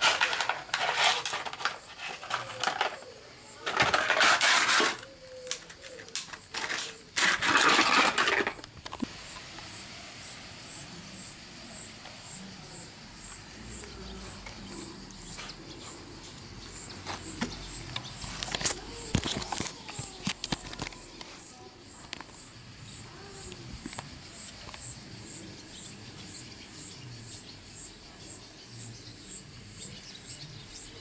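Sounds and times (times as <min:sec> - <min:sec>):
plastic bottle crinkling: 0:03.6 - 0:09.1, 0:18.3 - 0:21.2.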